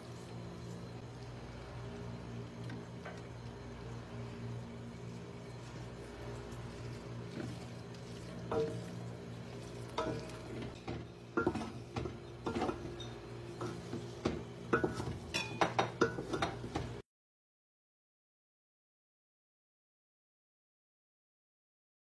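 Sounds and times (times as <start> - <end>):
steady low hum: 0.0 - 17.0
spoon scraping cooking pot: 5.5 - 16.9.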